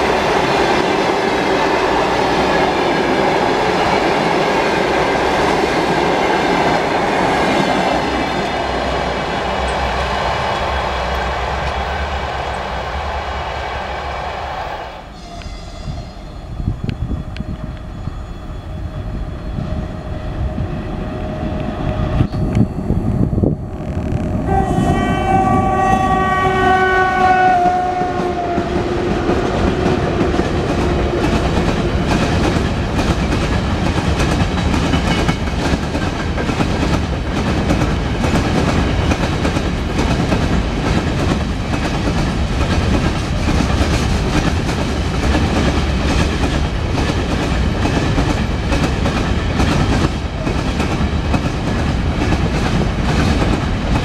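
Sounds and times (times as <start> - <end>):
train wheels rumbling: 0.0 - 54.0
locomotive horn: 15.0 - 16.6, 23.9 - 30.2
rhythmic clickety-clack: 29.4 - 54.0.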